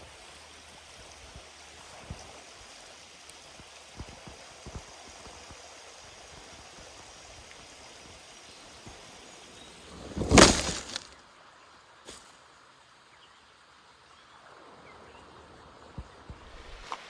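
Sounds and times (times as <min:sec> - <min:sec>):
creek rushing: 0:00.0 - 0:13.0, 0:13.7 - 0:17.0
camera clattering on ground: 0:10.0 - 0:11.1.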